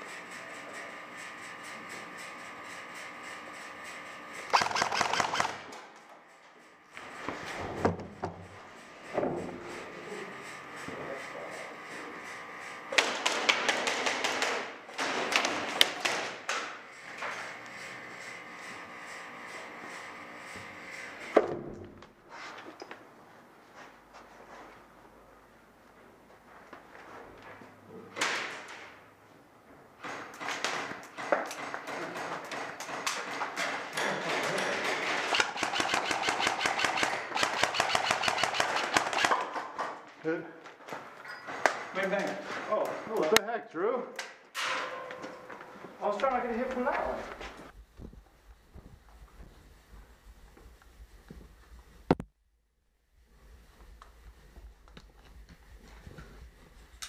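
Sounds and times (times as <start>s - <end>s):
airsoft gunfire: 4.5s - 5.9s, 13.0s - 16.8s, 34.9s - 39.6s
pellets knocking on hard walls: 12.9s - 16.7s.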